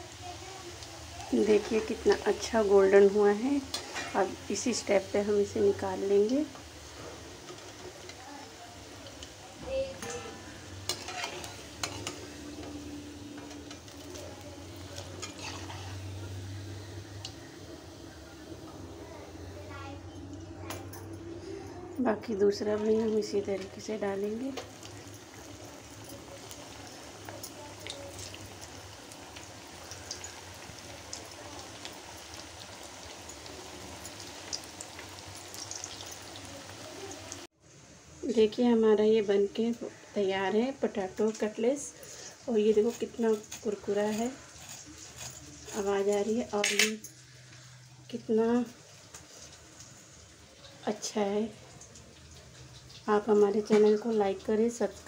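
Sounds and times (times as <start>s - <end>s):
food sizzling in hot oil: 0.0s - 20.4s, 21.4s - 55.0s
metal spoon scraping a pan: 3.6s - 4.9s, 9.9s - 17.5s, 42.0s - 47.1s.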